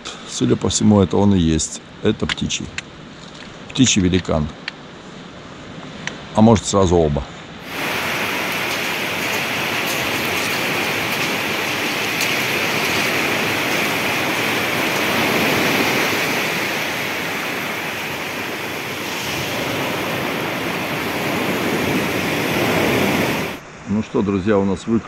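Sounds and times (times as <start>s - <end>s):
water rushing: 7.6s - 23.9s.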